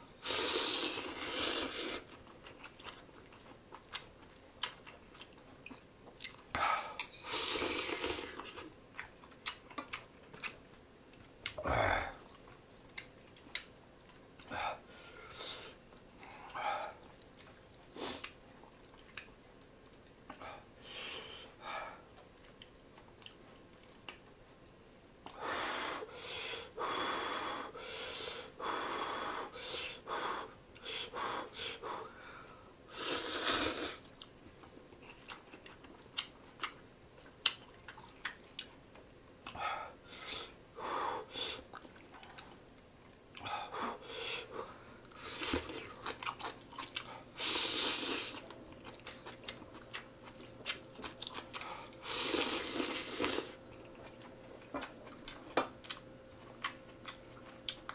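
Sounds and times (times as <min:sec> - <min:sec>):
slurping noodles: 0:00.2 - 0:02.1, 0:07.2 - 0:08.7, 0:32.9 - 0:34.1, 0:52.0 - 0:53.6
chewing: 0:00.8 - 0:06.5, 0:07.7 - 0:11.6, 0:12.2 - 0:14.5, 0:15.8 - 0:20.4, 0:22.1 - 0:24.4, 0:34.0 - 0:39.7, 0:41.7 - 0:43.5, 0:45.0 - 0:57.9.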